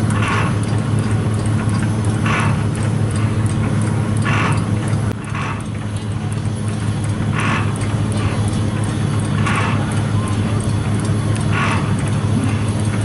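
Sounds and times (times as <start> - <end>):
low mechanical hum: 0.0 - 13.0
steam hissing: 2.2 - 5.8, 7.2 - 13.0.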